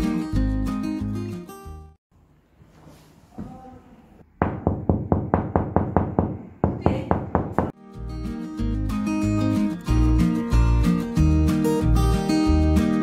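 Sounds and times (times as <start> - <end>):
background music with guitar and bass: 0.0 - 2.0, 7.8 - 13.0
knocks on a hollow wall: 4.4 - 7.8.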